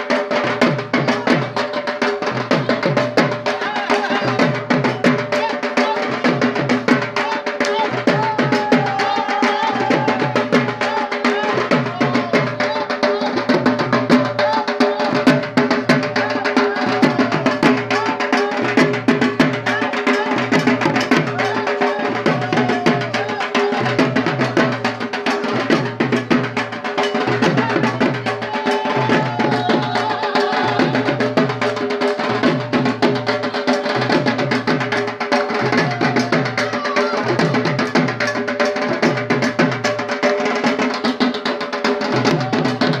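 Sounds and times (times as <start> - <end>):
barrel drum beaten fast with sticks: 0.0 - 43.0.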